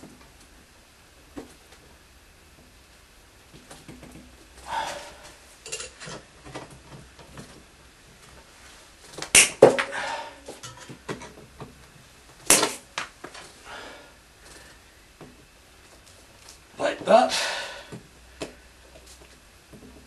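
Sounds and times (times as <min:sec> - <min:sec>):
pliers snapping wires: 0:09.3 - 0:09.7, 0:12.5 - 0:13.1.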